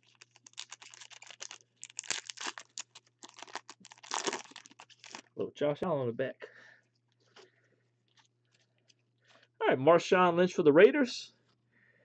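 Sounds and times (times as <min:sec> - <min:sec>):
foil wrapper crinkling: 0:00.0 - 0:05.3.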